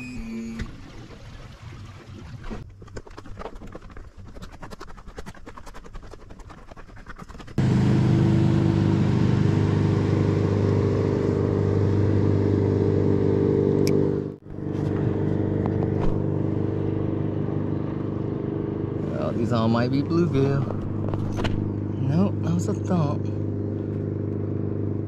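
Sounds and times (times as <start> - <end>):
boat motor humming: 0.0 - 1.2, 7.5 - 25.0.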